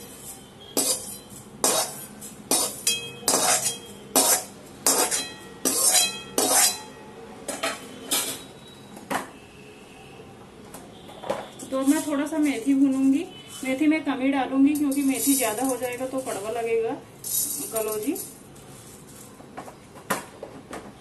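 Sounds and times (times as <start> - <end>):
metal spoon scraping a metal pan: 0.0 - 7.0, 14.7 - 16.7.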